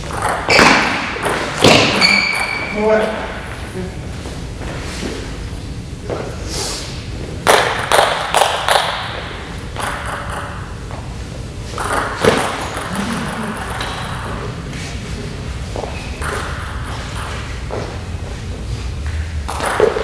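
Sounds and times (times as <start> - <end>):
table tennis ball strikes: 0.1 - 2.7, 7.4 - 10.7, 11.8 - 12.9, 19.1 - 20.0.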